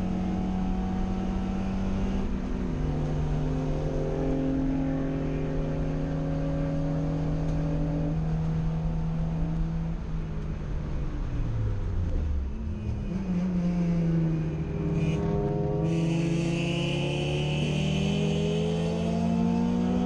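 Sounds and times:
race car engine revving: 11.8 - 20.0.

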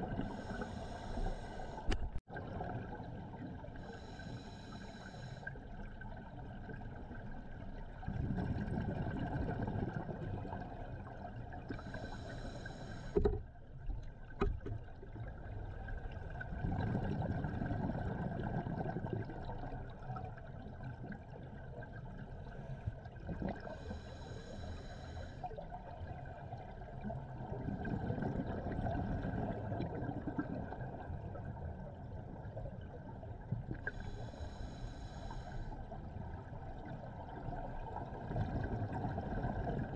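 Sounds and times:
hissing inhale through regulator: 0.1 - 2.0, 3.8 - 5.6, 11.7 - 13.4, 23.6 - 25.6, 33.8 - 35.9
exhaled bubbles rushing: 8.0 - 11.3, 16.0 - 19.8.

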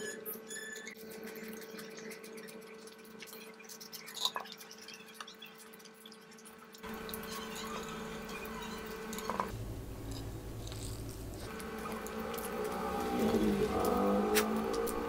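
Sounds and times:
person chewing food: 10.1 - 15.0.

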